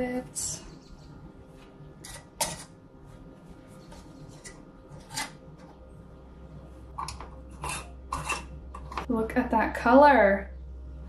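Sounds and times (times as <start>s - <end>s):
metal scraping and tapping on glass: 7.0s - 9.1s.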